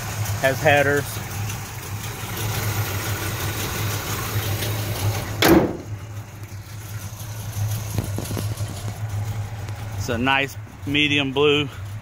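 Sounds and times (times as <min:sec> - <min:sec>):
car engine idling: 0:00.0 - 0:12.0
car hood slamming: 0:05.3 - 0:06.0.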